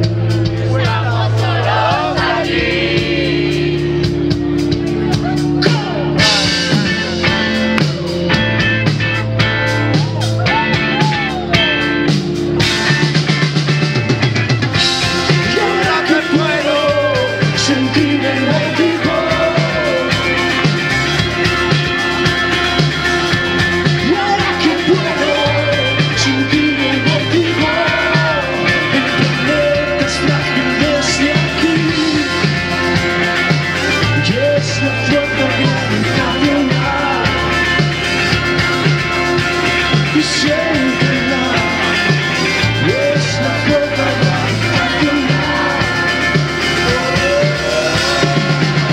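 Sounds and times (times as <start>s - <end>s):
man singing: 0.0s - 4.2s, 5.6s - 8.0s, 15.1s - 21.8s, 23.7s - 37.9s, 39.6s - 48.9s
bass: 0.0s - 48.9s
drum kit beat: 0.0s - 48.9s
electric guitar: 0.0s - 48.9s
keyboard: 0.0s - 48.9s.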